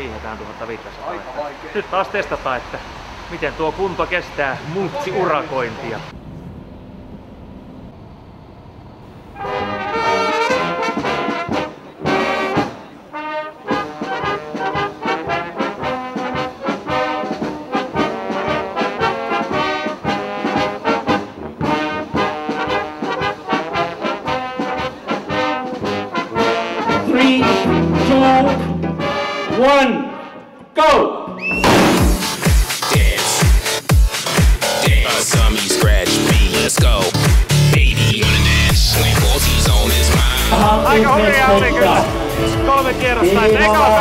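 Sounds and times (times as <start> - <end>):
low car cabin noise: 5.7 - 9.4
brass band playing: 9.3 - 30.6, 31.6 - 44.0.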